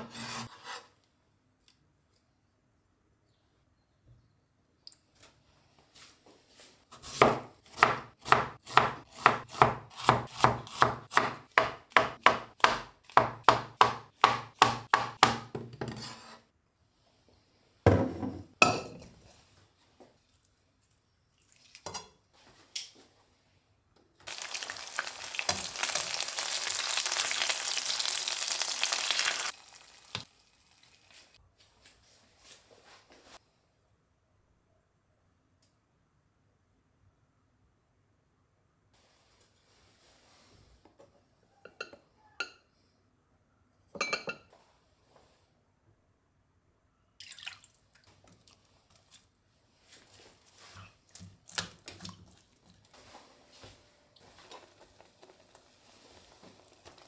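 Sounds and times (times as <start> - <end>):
knife chopping on wooden board: 7.0 - 15.7
chicken sizzling in hot oil: 24.2 - 31.4, 54.2 - 57.0.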